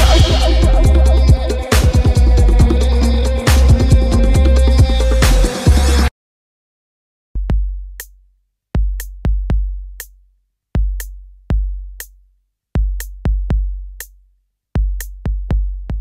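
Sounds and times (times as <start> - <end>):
held synth tones: 0.0 - 5.2
deep bass kicks: 0.0 - 6.1.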